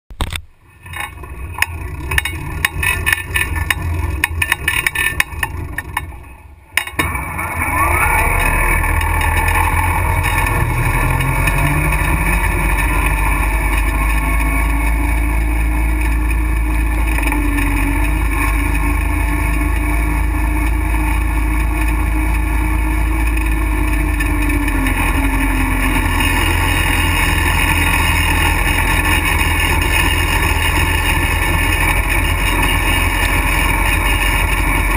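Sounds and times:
small motorbike engine revving: 0:00.9 - 0:34.9.

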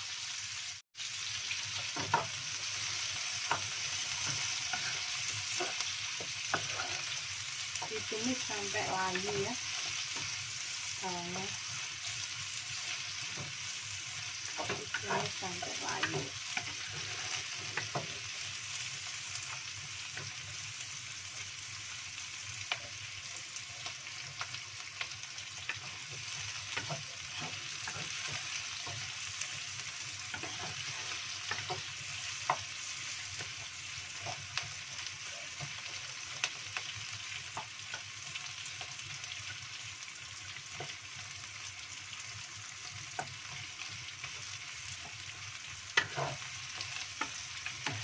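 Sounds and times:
shallots sizzling in hot oil: 0:00.0 - 0:48.0
wooden spatula scraping wok: 0:01.8 - 0:10.4, 0:14.4 - 0:18.4, 0:25.6 - 0:32.8, 0:45.9 - 0:48.0.

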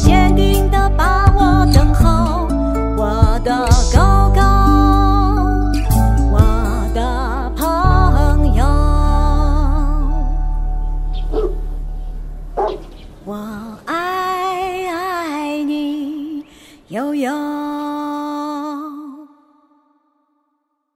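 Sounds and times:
woman singing a slow ballad: 0:00.0 - 0:11.3, 0:13.1 - 0:20.0
backing music: 0:00.0 - 0:13.2.

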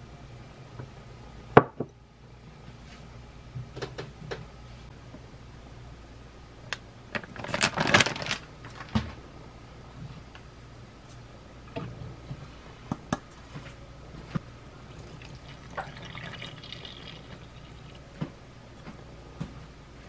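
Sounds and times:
water trickling into flour: 0:14.8 - 0:18.1.

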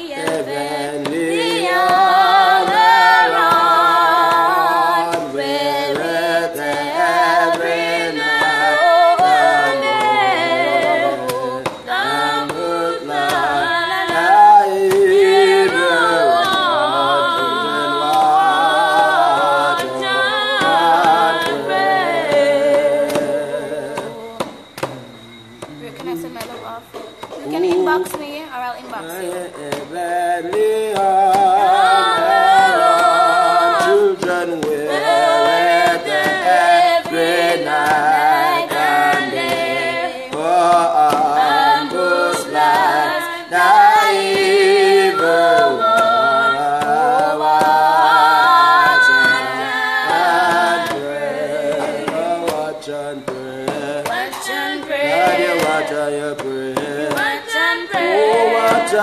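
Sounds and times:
woman and man singing together: 0:00.0 - 0:59.0.

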